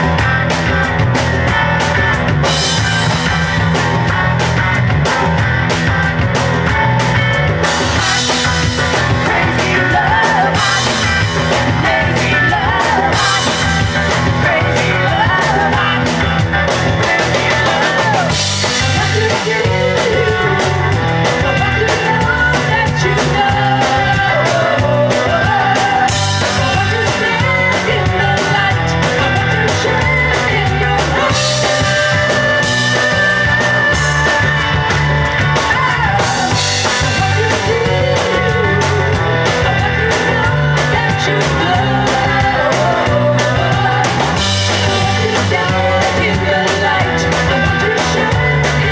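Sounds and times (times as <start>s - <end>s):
drum kits with cymbals: 0.0s - 48.9s
electric bass: 0.0s - 48.9s
electric guitar: 0.0s - 48.9s
women singing: 8.9s - 48.9s.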